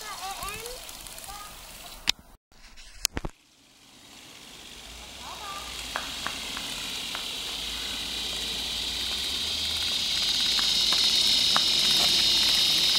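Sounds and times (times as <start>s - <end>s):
high hissing drone: 3.4s - 12.9s.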